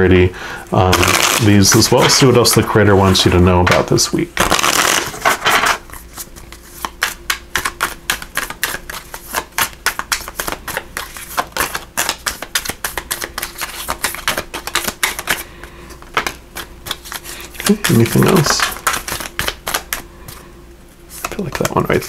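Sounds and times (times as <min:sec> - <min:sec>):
cards shuffled clicking: 0:00.9 - 0:20.4, 0:21.1 - 0:22.0.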